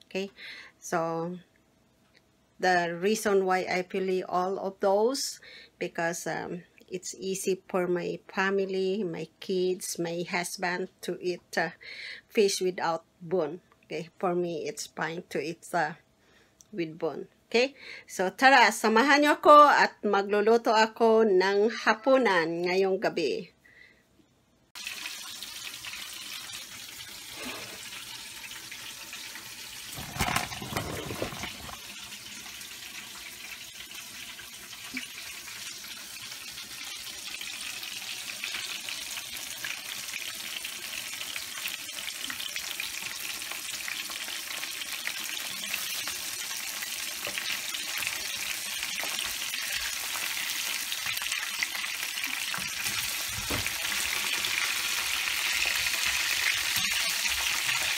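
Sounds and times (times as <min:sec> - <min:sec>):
fish sizzling in frying pan: 0:24.8 - 0:57.9.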